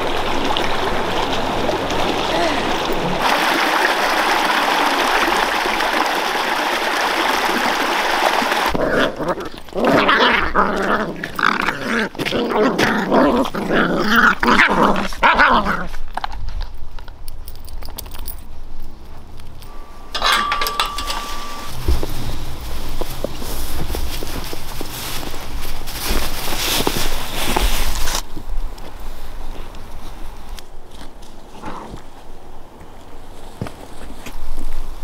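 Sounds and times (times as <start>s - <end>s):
stream running over rocks: 0.0s - 9.8s, 20.1s - 29.6s
puppies growling and yipping: 8.7s - 15.9s.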